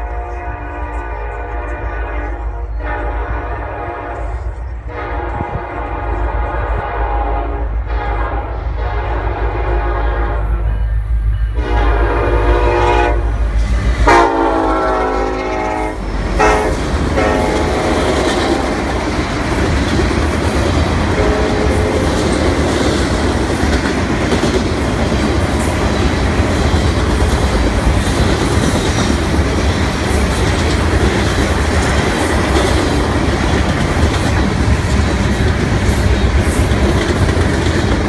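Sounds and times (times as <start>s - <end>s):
locomotive air horn blasts: 0.0s - 10.9s, 11.5s - 13.4s, 14.0s - 18.8s, 21.1s - 22.2s
wheels clacking on rails: 10.4s - 38.0s.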